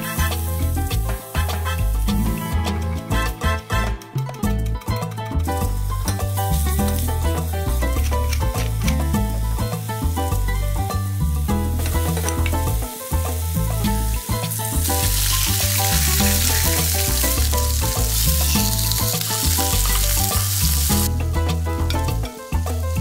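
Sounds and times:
fish sizzling in frying pan: 0:00.0 - 0:02.2, 0:05.5 - 0:21.1
background music with bass line: 0:00.0 - 0:23.0.

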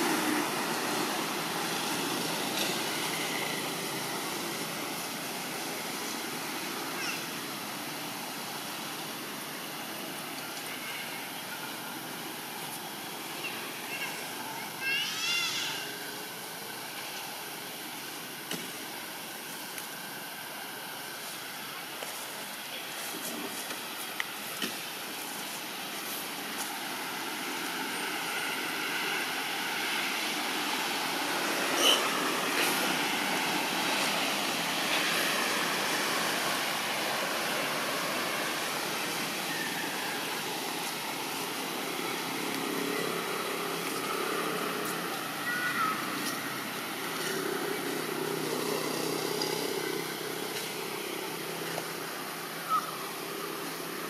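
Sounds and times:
outdoor background noise: 0:00.0 - 0:54.0.

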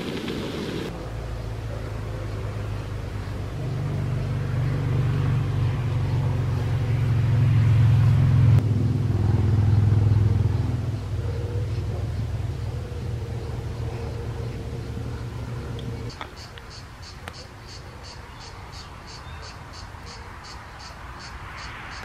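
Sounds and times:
vehicle engine passing by: 0:00.0 - 0:16.1.

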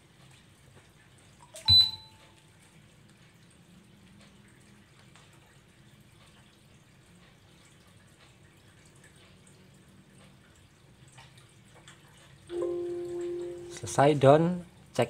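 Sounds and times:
short electronic beep: 0:01.6 - 0:02.2
faint steady hum: 0:08.5 - 0:15.0.

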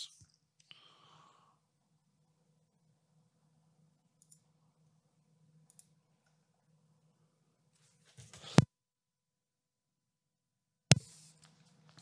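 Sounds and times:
computer mouse clicks: 0:04.2 - 0:04.5, 0:05.7 - 0:06.4.

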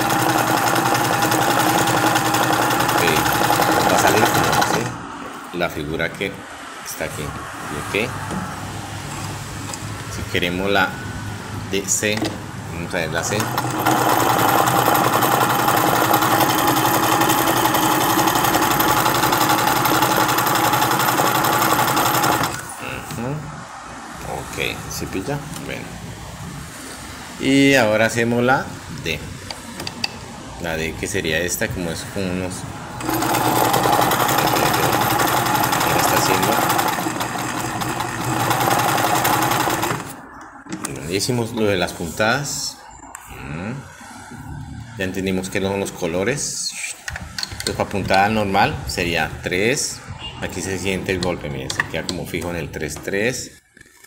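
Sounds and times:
sewing machine stitching: 0:00.0 - 0:05.0, 0:13.2 - 0:22.7, 0:33.0 - 0:40.2.

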